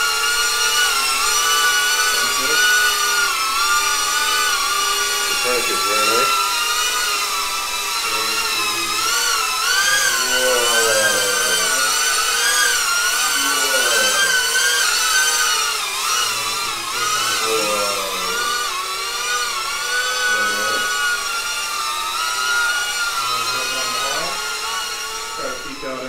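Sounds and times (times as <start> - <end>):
drone propellers whining: 0.0 - 26.0.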